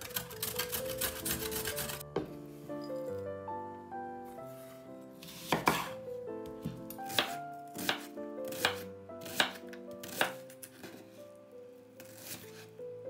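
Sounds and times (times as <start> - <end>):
soft background music: 0.0 - 13.0
knife slicing onion on board: 5.2 - 6.0, 6.6 - 11.0, 12.0 - 12.6.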